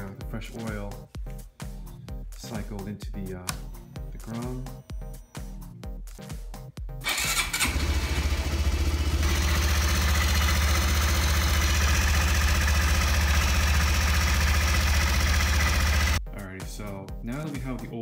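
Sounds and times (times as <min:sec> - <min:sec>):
motorcycle engine idling: 0:07.0 - 0:16.2.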